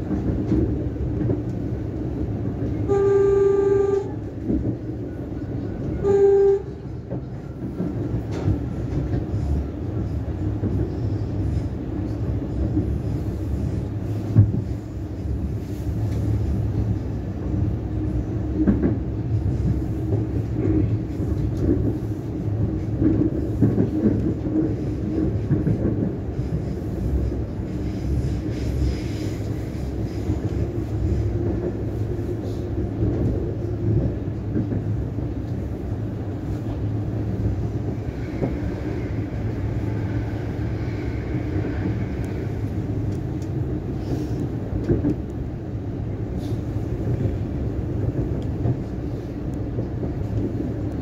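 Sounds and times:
train wheels rumbling on track: 0.0s - 51.0s
train horn blasts: 2.8s - 4.3s, 5.9s - 7.0s.

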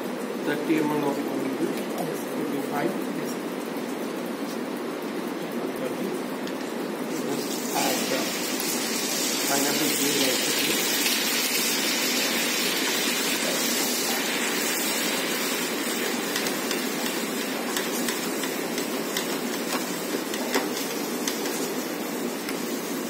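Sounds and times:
juice sizzling in a frying pan: 7.0s - 23.0s.

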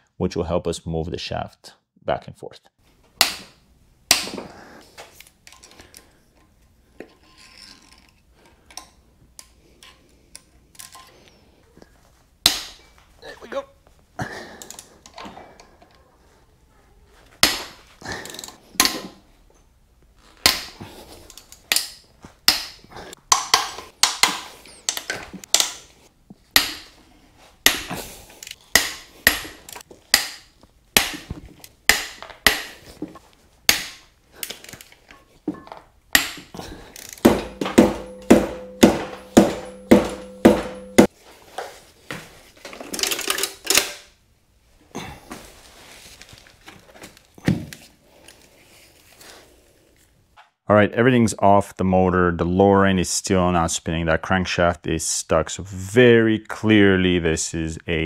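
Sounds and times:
metal tools clicking and clanking: 36.7s - 41.1s.

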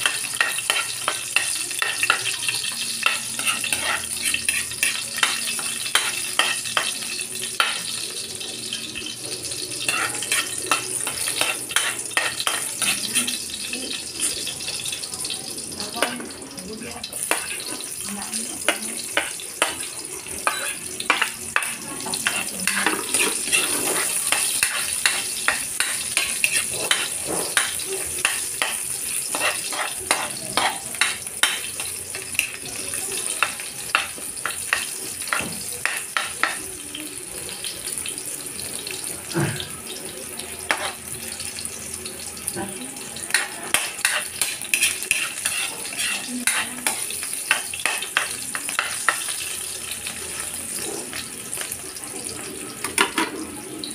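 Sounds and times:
metal spoon scraping pan: 0.0s - 2.2s, 3.0s - 6.9s, 9.9s - 13.4s, 20.4s - 31.6s, 40.7s - 41.0s, 43.3s - 49.2s
garlic and onion sizzling: 0.0s - 53.9s.

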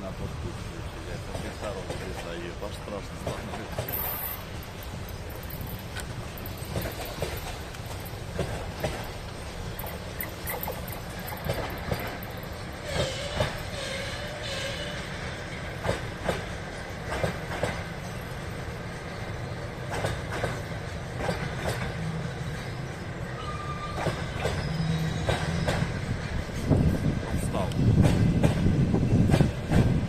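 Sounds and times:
wheel squeals: 23.4s - 26.0s.

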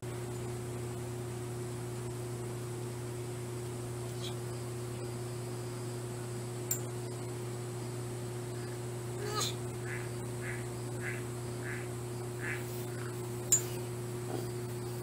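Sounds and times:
steady low hum: 0.0s - 15.0s
short animal calls: 8.5s - 13.2s.

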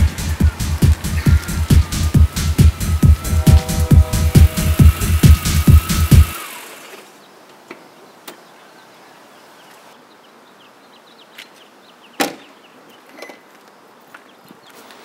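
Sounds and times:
electronic music: 0.0s - 6.7s.

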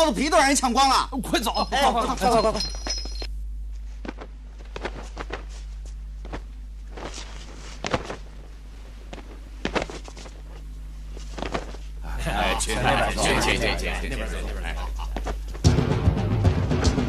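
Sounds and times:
steady low hum: 0.0s - 17.0s
footsteps: 2.9s - 12.0s.

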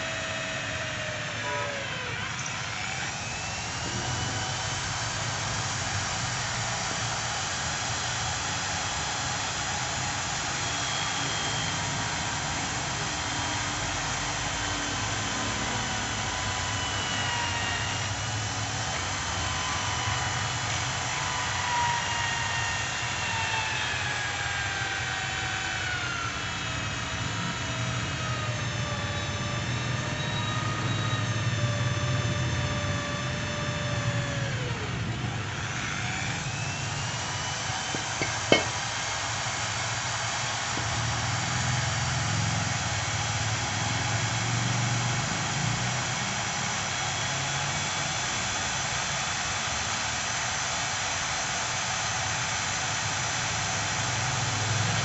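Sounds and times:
electric drill whining: 0.0s - 55.0s.

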